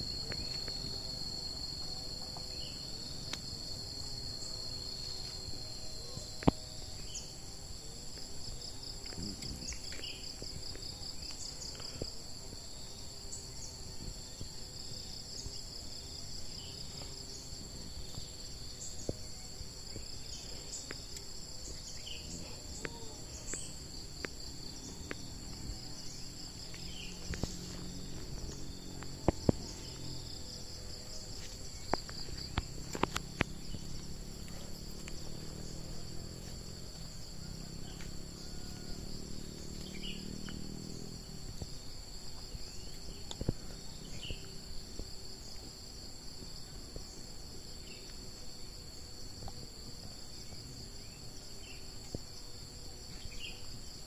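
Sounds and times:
high-pitched insect chorus: 0.0 - 54.0
pulsing insect trill: 0.0 - 54.0.

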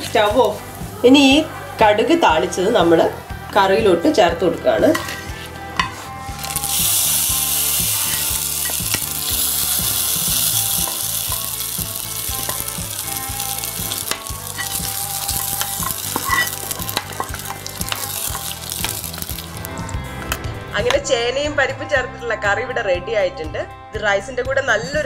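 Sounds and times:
oil sizzling: 0.0 - 1.4, 4.8 - 20.4.

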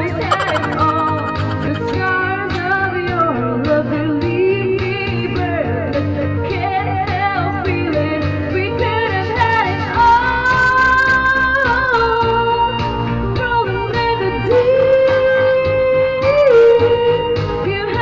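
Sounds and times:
person singing karaoke: 0.0 - 2.6.

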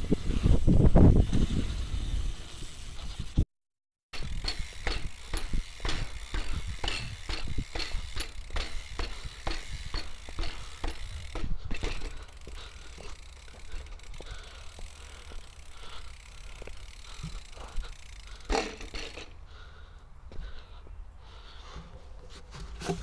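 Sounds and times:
bike tyres rumbling on dirt: 0.0 - 3.4, 4.2 - 19.9
bike rattling clicks: 4.2 - 19.4.

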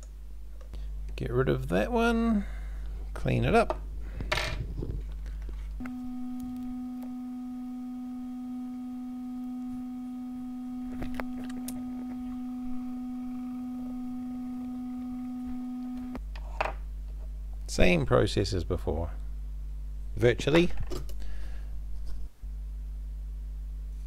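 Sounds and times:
low electronic tone: 5.8 - 16.2.

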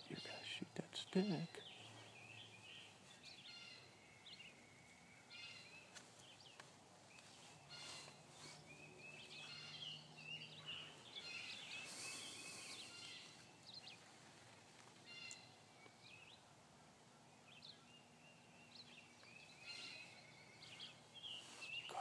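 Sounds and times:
small birds chirping: 0.0 - 22.0
soft rustles: 5.8 - 9.6, 13.8 - 15.1, 20.6 - 22.0.

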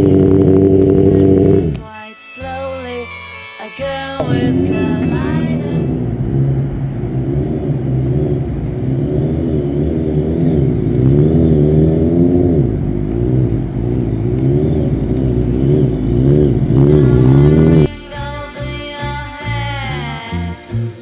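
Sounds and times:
motorcycle engine revving: 0.0 - 1.8, 4.2 - 17.9.

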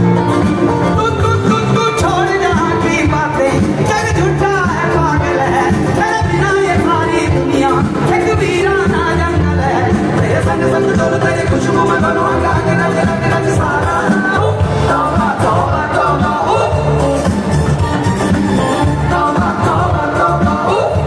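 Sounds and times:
live band music: 0.0 - 21.0
person singing melismatic vocals: 0.0 - 21.0.

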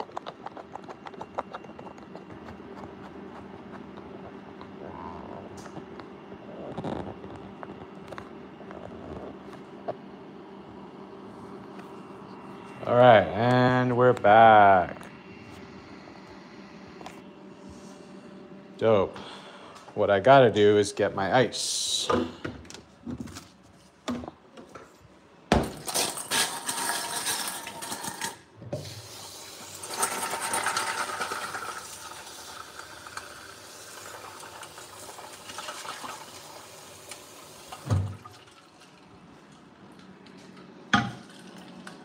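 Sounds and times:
ice cubes clattering into metal bowl: 25.8 - 28.4, 29.8 - 31.8.

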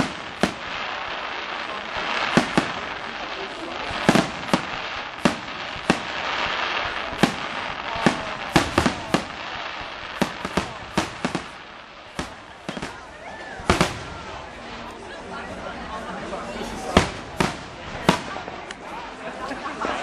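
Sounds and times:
firework shells bursting: 0.0 - 13.0.

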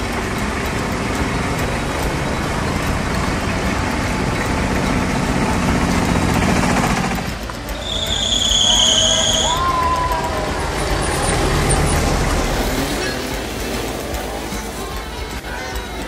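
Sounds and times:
tyres on road: 0.0 - 16.0
vehicles driving past: 0.0 - 16.0.

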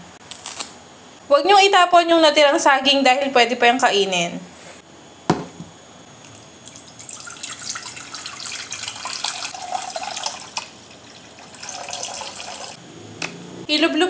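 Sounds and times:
water pouring into a bowl: 6.6 - 12.8.

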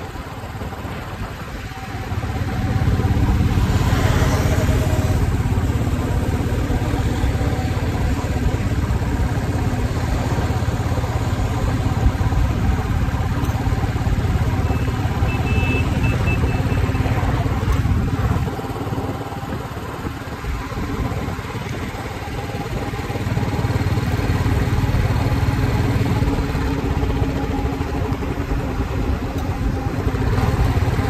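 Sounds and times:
motorcycle engine droning: 0.0 - 31.0
wind and road noise: 0.0 - 31.0.

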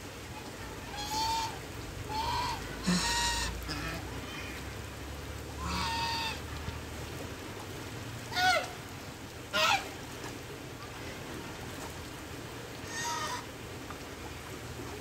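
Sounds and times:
geese honking: 0.9 - 4.0, 5.6 - 6.4.

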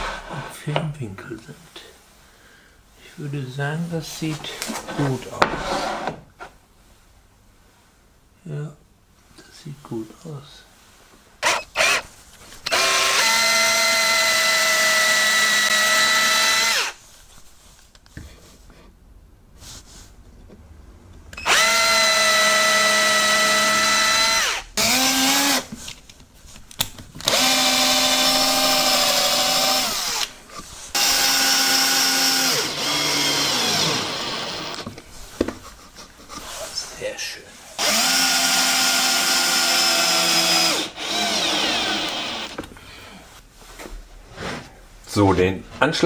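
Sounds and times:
cordless drill running: 11.4 - 12.0, 12.6 - 17.0, 21.4 - 25.7, 27.2 - 34.9, 37.8 - 42.6.

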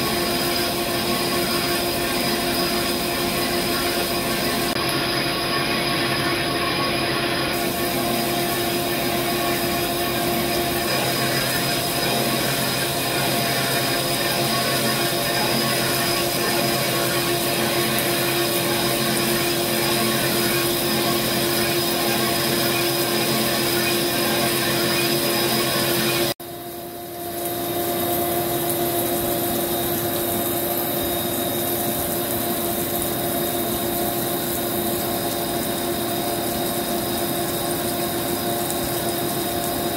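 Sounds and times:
lathe machine whir: 0.0 - 26.4
coolant hiss: 0.0 - 39.9.

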